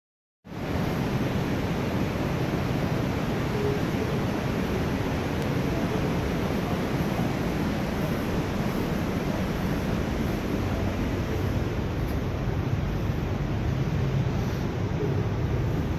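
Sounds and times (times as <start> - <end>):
rushing underground river and waterfall: 0.5 - 15.9.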